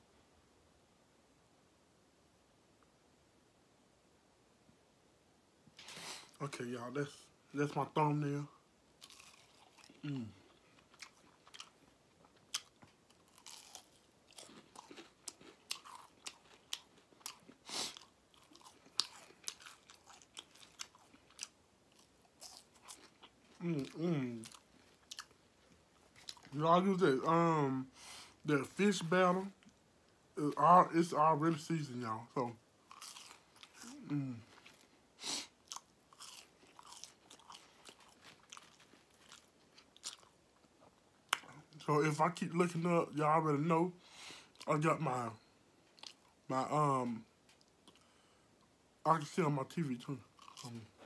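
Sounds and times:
crunching on fried fish: 0:09.0 - 0:26.6, 0:32.9 - 0:40.4, 0:50.4 - 0:51.0
mouth sounds: 0:23.6 - 0:24.5, 0:33.8 - 0:34.6.

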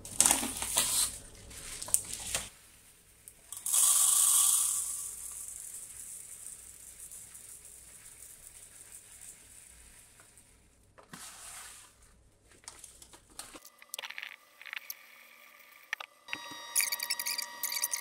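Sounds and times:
plastic bag crinkling: 0:00.0 - 0:02.5
rice pouring into plastic cup: 0:00.1 - 0:12.1.

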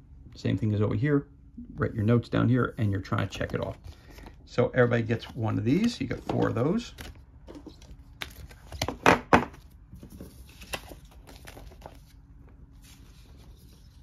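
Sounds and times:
paper rustling: 0:03.2 - 0:14.0.

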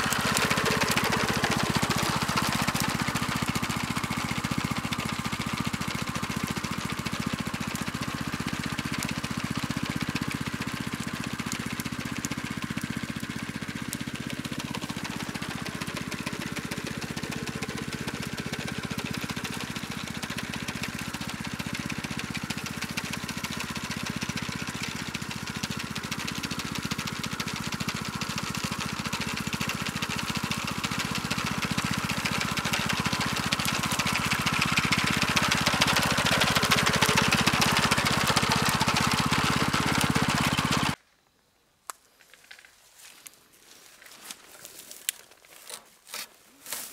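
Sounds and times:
small petrol mower engine running: 0:00.0 - 0:41.0.

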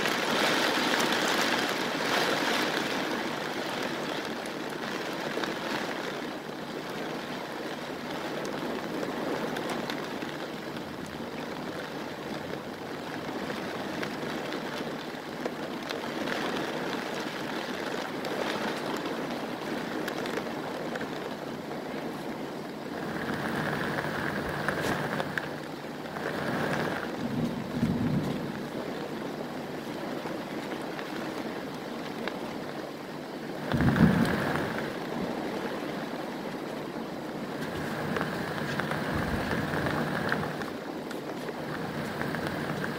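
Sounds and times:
heavy rain pouring: 0:00.0 - 0:42.9
wind gusts: 0:00.0 - 0:42.9
low rumble: 0:22.9 - 0:28.8.

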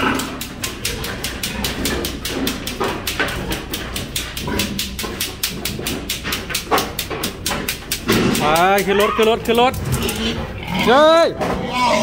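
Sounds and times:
hooves clicking on concrete: 0:00.0 - 0:11.9
pig grunts: 0:08.1 - 0:12.0.

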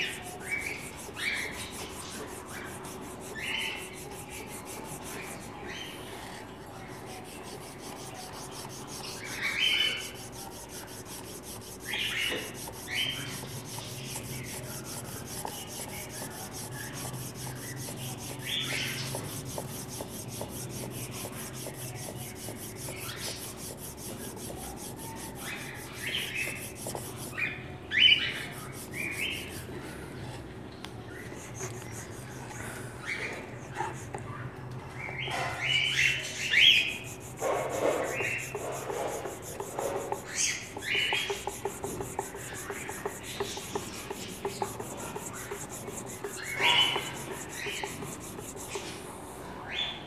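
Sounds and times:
garlic scraping on metal grater: 0:00.0 - 0:05.5, 0:06.9 - 0:27.4, 0:36.8 - 0:49.0.

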